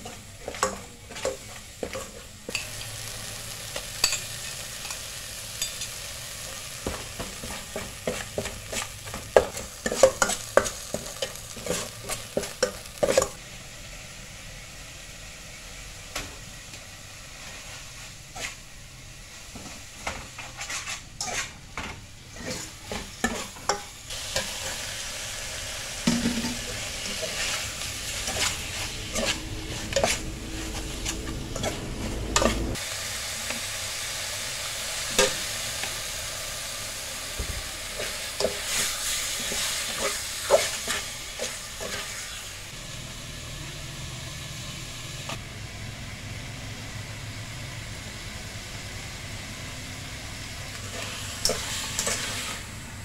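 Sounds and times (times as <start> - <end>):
meat sizzling in a pot: 0.0 - 53.0
metal spoon scraping a pot: 20.4 - 21.6, 26.1 - 32.8.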